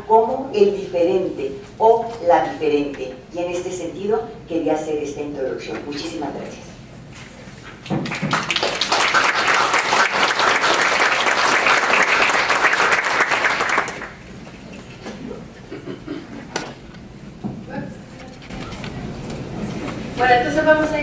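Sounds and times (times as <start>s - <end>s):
audience applauding: 8.0s - 14.2s.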